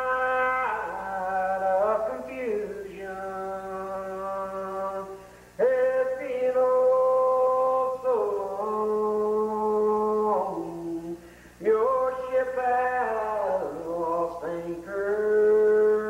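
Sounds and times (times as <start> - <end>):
man singing unaccompanied: 0.0 - 16.0
man breathing: 5.2 - 5.6, 11.2 - 11.6.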